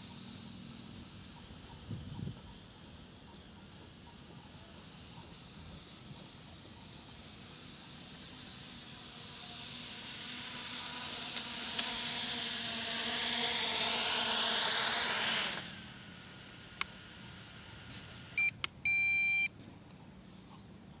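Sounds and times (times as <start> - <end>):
quadcopter motor whine: 0.0 - 19.5
electronic beeps: 18.3 - 19.5.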